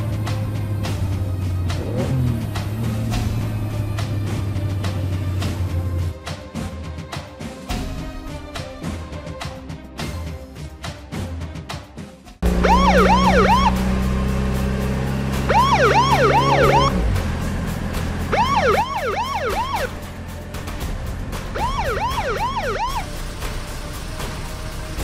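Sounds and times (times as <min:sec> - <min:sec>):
police siren yelps: 0:12.5 - 0:13.8, 0:15.5 - 0:16.9, 0:18.3 - 0:20.0, 0:21.6 - 0:23.1.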